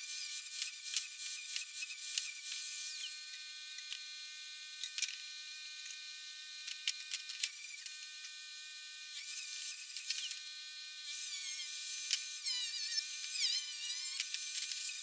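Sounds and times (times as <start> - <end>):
angle grinder cutting steel: 0.0 - 4.2, 9.1 - 15.0.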